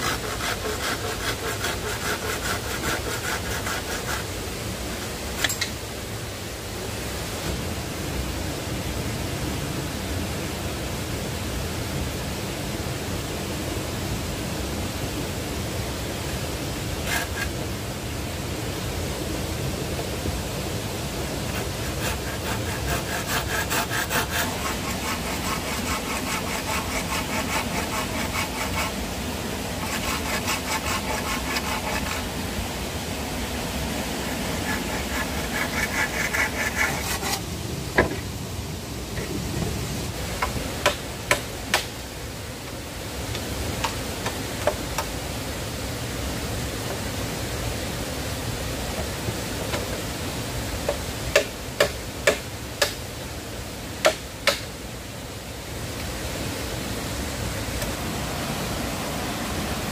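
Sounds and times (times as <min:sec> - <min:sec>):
hand saw cutting bamboo: 0:00.0 - 0:04.3, 0:16.9 - 0:17.6, 0:21.5 - 0:32.5, 0:34.1 - 0:37.5, 0:40.8 - 0:41.9, 0:50.9 - 0:53.0, 0:54.0 - 0:54.7
stream rushing: 0:00.0 - 0:59.9
sharp knocks of bamboo: 0:40.4 - 0:41.9, 0:51.3 - 0:53.0, 0:54.0 - 0:54.7.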